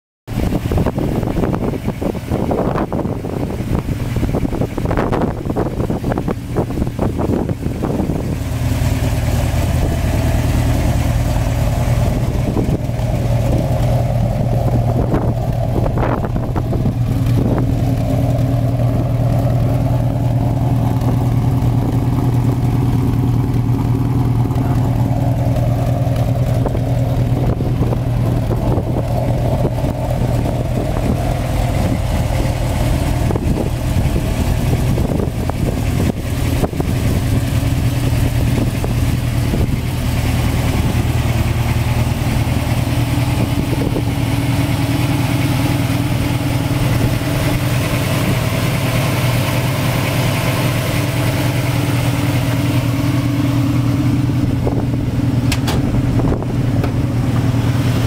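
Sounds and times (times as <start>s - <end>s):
car engine idling: 0.3s - 58.0s
engine knocks: 0.3s - 58.0s.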